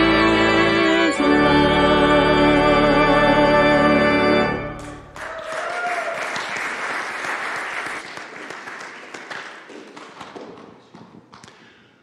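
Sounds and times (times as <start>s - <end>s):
organ and voices chord: 0.0s - 5.2s
congregation applauding: 4.7s - 11.8s.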